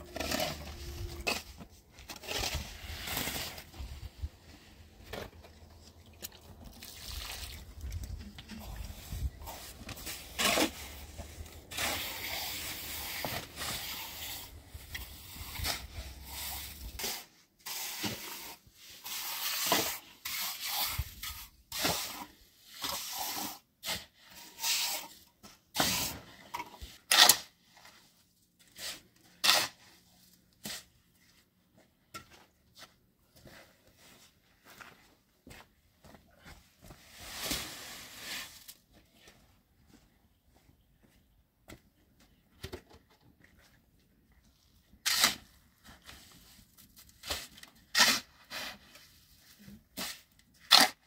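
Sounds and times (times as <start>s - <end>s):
trowel scraping wet cement: 0.0s - 4.3s, 6.7s - 25.2s, 28.6s - 30.0s, 45.0s - 51.0s.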